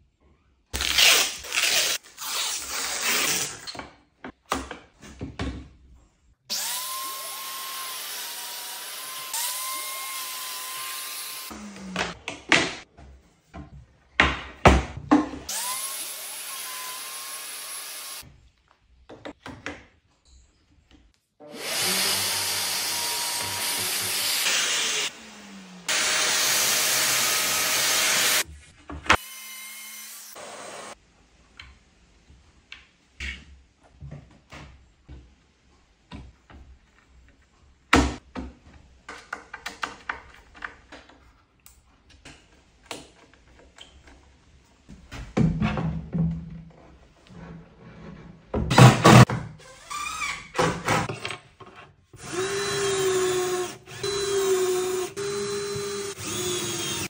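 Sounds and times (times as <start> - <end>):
cordless drill boring: 6.5 - 11.8, 15.5 - 18.2, 21.5 - 28.4, 52.2 - 57.0
panels clicking and knocking: 38.0 - 41.4.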